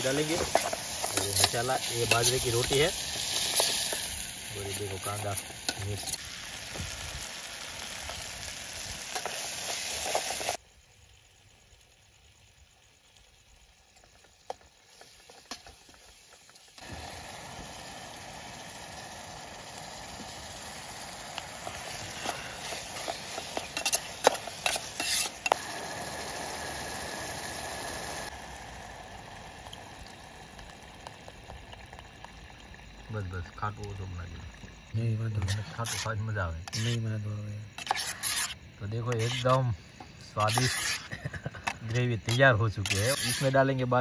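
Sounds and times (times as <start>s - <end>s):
vegetables sizzling in a pot: 0.0s - 44.0s
metal spoon scraping a pot: 21.8s - 25.6s, 35.4s - 37.0s, 37.8s - 39.6s, 40.3s - 43.6s.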